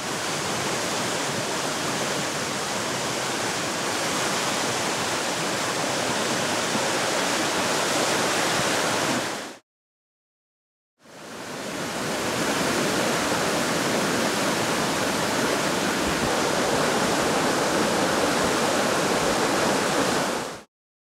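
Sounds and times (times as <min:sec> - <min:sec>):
floodwater rushing: 0:00.0 - 0:09.6, 0:11.1 - 0:20.7.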